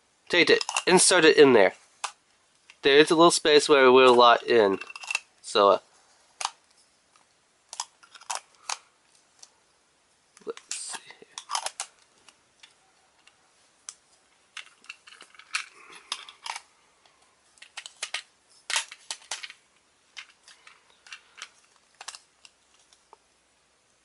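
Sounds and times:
plastic clicks and rattles: 0.5s - 0.9s, 4.8s - 5.2s, 7.2s - 9.5s, 10.4s - 16.7s, 17.6s - 23.2s.

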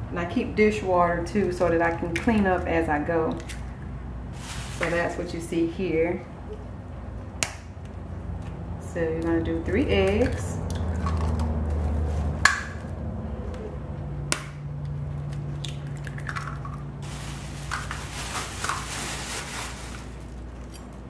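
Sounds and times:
plastic bag crinkling: 4.3s - 5.2s, 17.0s - 20.7s
eggs cracking on bowl rim: 10.0s - 11.6s, 14.3s - 16.9s.

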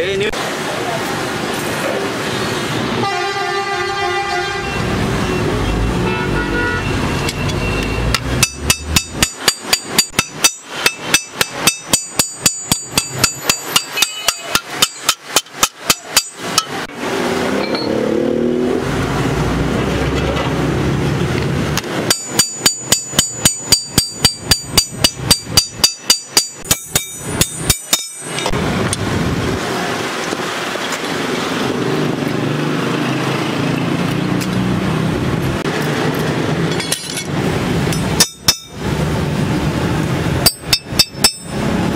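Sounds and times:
street traffic rumble: 0.0s - 41.9s
hammer ringing on sheet steel: 8.1s - 16.8s, 22.0s - 28.6s, 38.0s - 38.8s, 40.4s - 41.6s.

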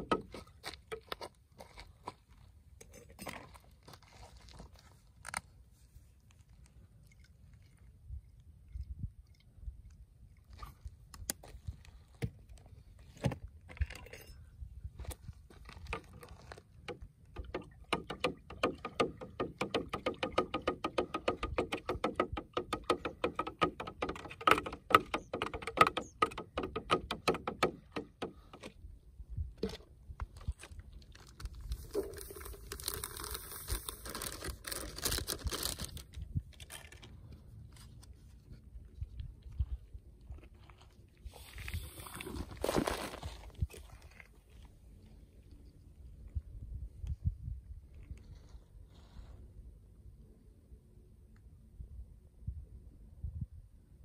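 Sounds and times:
utensil stirring in plastic jug: 31.8s - 34.4s.

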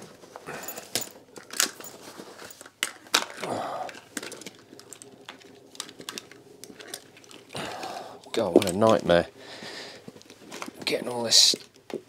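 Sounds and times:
fabric and cable rustling: 0.0s - 12.0s
plastic plugs clattering together: 2.6s - 7.5s, 8.2s - 9.2s.

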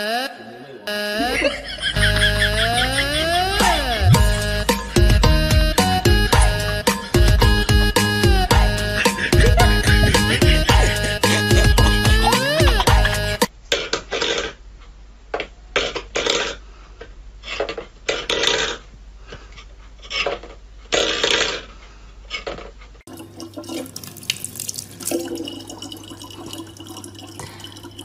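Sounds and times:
water pouring into plastic bottle: 23.1s - 28.0s.

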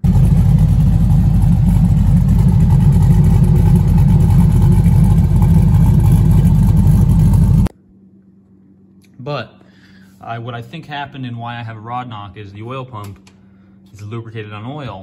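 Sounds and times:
car engine idling: 0.0s - 7.7s.

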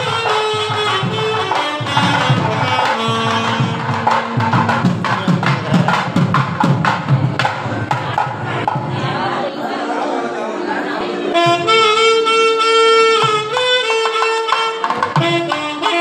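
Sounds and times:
alto saxophone melody: 0.0s - 5.4s, 11.3s - 16.0s
hand drum strokes: 0.0s - 8.9s.

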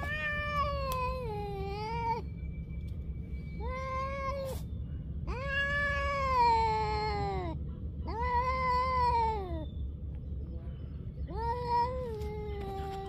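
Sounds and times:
cats yowling: 0.0s - 2.3s, 3.6s - 9.7s, 11.3s - 13.0s.

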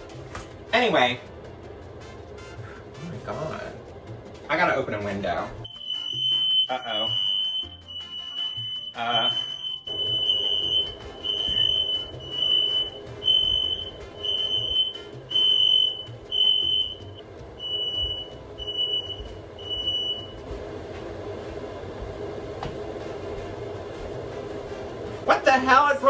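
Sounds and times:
low hum: 5.5s - 25.3s
smoke alarm beeping: 5.6s - 20.4s.

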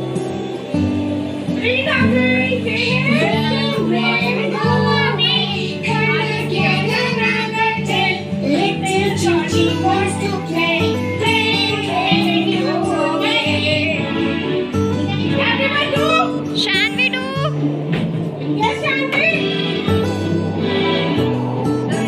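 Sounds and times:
children's song music: 0.0s - 22.0s
person singing: 1.5s - 14.3s.

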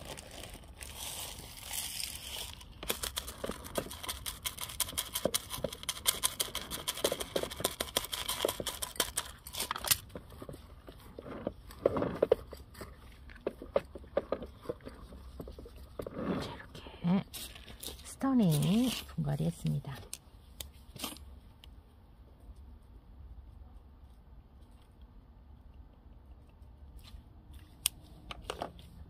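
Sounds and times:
gravel poured from plastic scoop: 0.0s - 4.3s
gloved hands pressing grit: 0.0s - 16.7s
small stones clicking and rattling: 0.0s - 16.7s.

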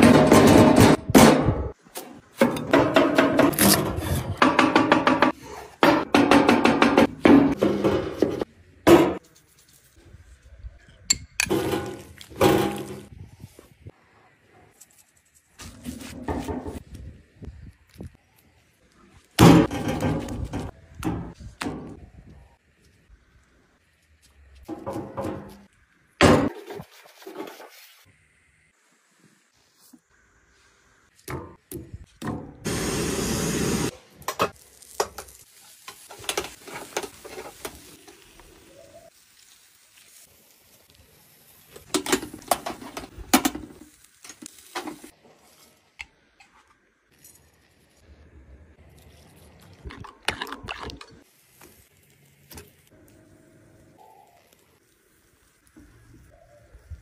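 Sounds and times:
loud sizzle: 32.6s - 46.0s, 51.2s - 57.0s.

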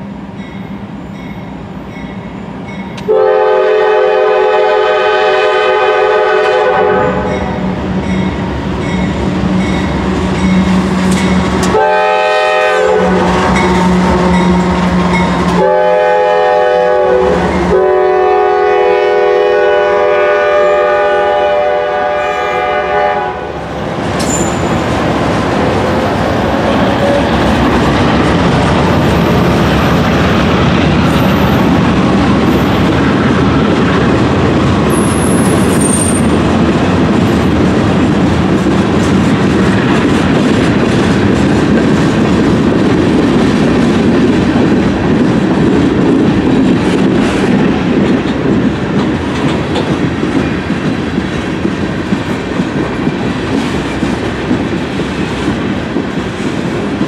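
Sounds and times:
freight train wheels rumbling: 0.0s - 57.0s
clickety-clack over rail joints: 6.4s - 17.8s, 23.9s - 57.0s
wheel squeals: 24.2s - 24.9s.

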